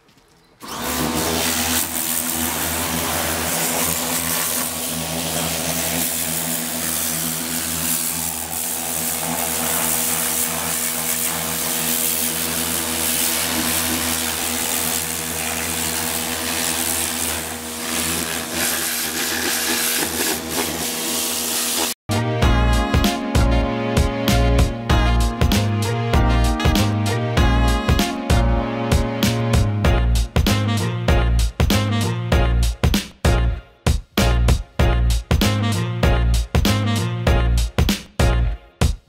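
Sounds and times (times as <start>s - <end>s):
pressure washer motor hum: 0.6s - 23.6s
water jet hissing: 1.2s - 22.0s.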